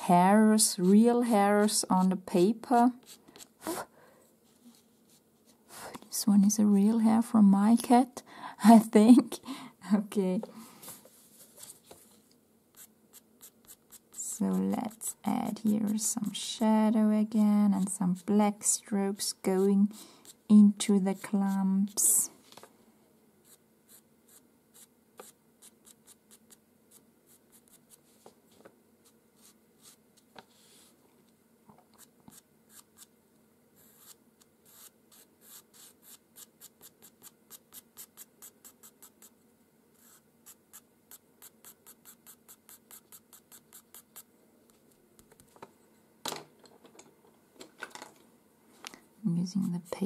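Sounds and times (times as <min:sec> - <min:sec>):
pencil scratching on paper: 0:12.7 - 0:16.4, 0:23.4 - 0:28.1, 0:32.0 - 0:33.1, 0:33.8 - 0:39.4, 0:40.0 - 0:44.3.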